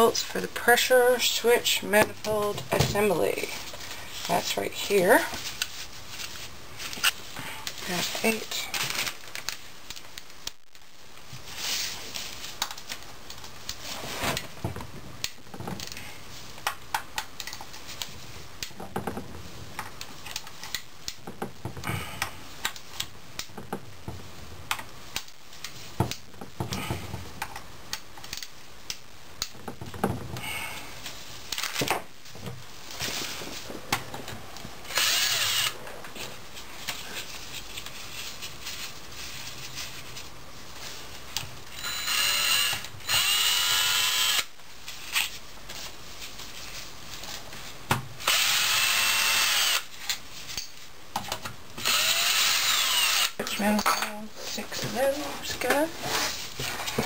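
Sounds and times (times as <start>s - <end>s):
cordless drill spinning: 34.8s - 35.8s, 41.8s - 44.5s, 48.2s - 49.9s, 51.8s - 53.4s.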